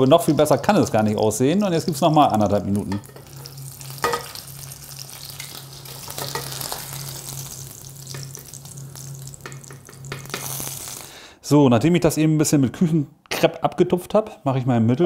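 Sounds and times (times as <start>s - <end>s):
steak sizzling in a pan: 0.0s - 11.2s
low steady hum: 0.0s - 13.2s.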